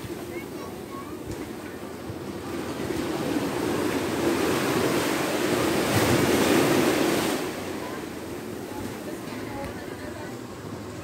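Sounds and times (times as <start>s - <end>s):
small waves washing up sand: 0.0s - 11.0s.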